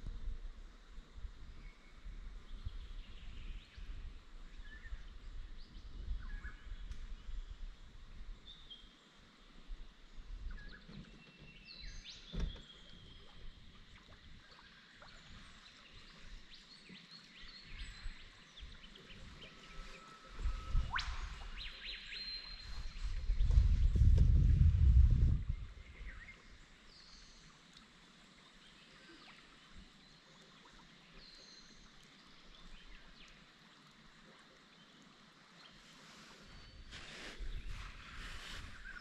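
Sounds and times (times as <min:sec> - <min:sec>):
birds chirping and whistling: 0:19.0 - 0:24.0
low gusting rumble: 0:22.7 - 0:26.0.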